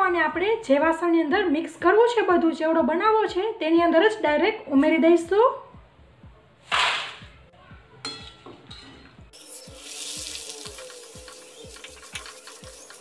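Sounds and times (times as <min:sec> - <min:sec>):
food sizzling in hot oil: 0:09.3 - 0:13.0.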